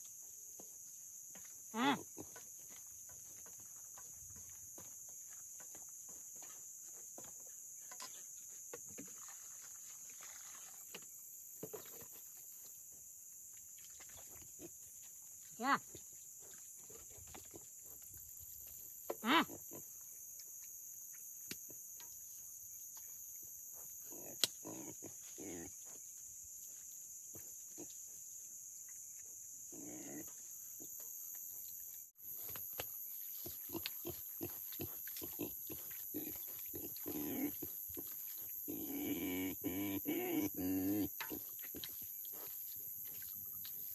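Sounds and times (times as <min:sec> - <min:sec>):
night insects droning: 0:00.0 - 0:43.9
pig grunting: 0:24.1 - 0:25.8, 0:29.7 - 0:30.3, 0:33.4 - 0:42.0
pig squealing: 0:38.7 - 0:41.1.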